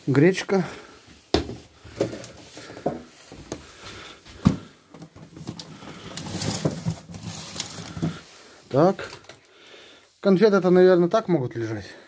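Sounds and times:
plastic bags crinkling: 0:04.0 - 0:09.6.

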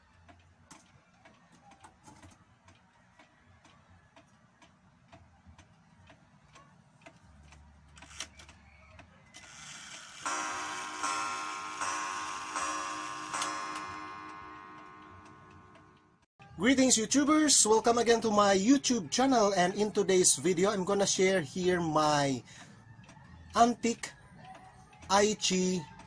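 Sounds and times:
wall clock ticking: 0:00.0 - 0:07.6, 0:10.1 - 0:26.0
clock striking the hour: 0:09.4 - 0:16.2.

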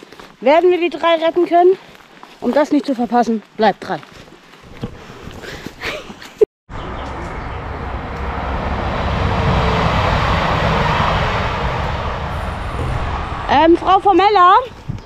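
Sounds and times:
train passing: 0:06.8 - 0:15.0.

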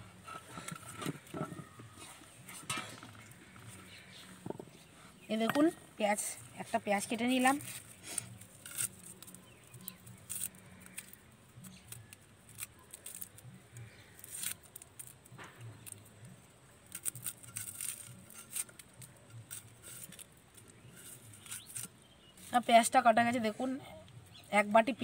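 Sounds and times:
onion skin tearing: 0:07.5 - 0:22.6.

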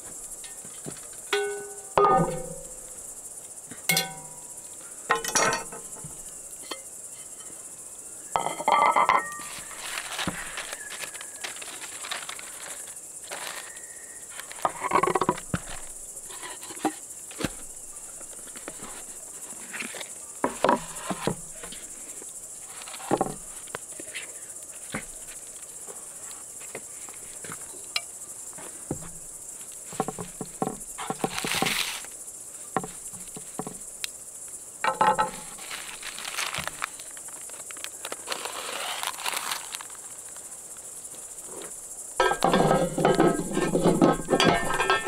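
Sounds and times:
crickets chirping: 0:00.0 - 0:45.0
pot and bowl clanking: 0:01.3 - 0:02.8, 0:03.9 - 0:07.5, 0:08.4 - 0:09.8, 0:42.2 - 0:45.0.

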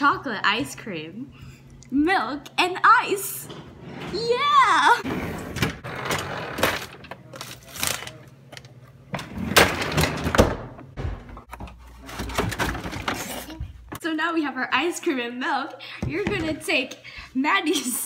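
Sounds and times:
frozen packages clattering: 0:05.8 - 0:08.7.

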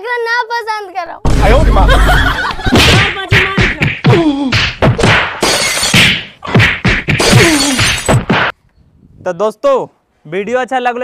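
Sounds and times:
whacking blows: 0:02.5 - 0:08.6.

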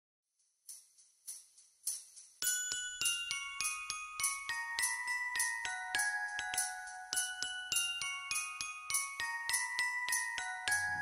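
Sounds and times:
jingle bells shaken: 0:00.3 - 0:11.0
bell-like melody: 0:00.4 - 0:11.0.

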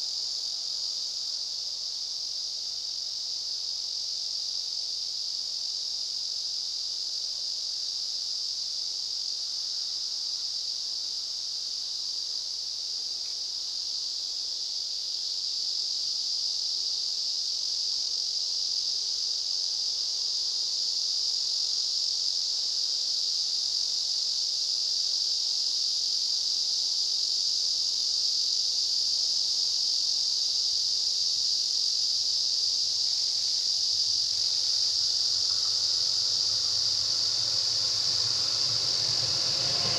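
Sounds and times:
insects buzzing: 0:22.8 - 0:39.9.

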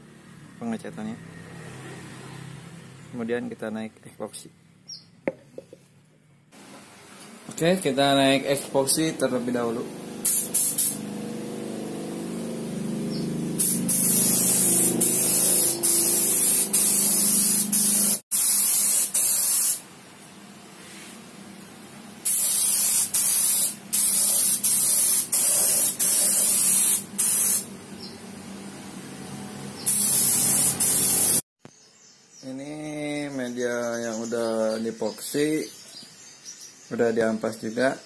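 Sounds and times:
spray gun hissing: 0:09.0 - 0:19.9, 0:22.2 - 0:27.7, 0:29.8 - 0:31.4.

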